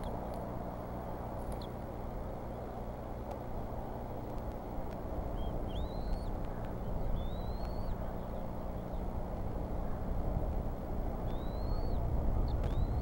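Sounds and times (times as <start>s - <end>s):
low outdoor rumble: 0.0s - 13.0s
bird whistled calls: 5.4s - 6.3s, 7.0s - 8.3s, 11.3s - 13.0s.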